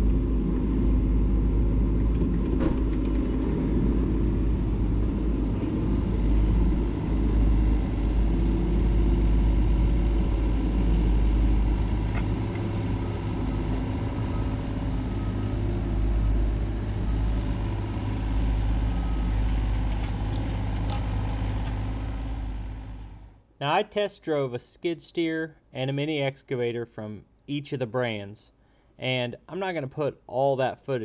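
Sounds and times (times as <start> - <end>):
diesel engine running: 0.0 - 23.4.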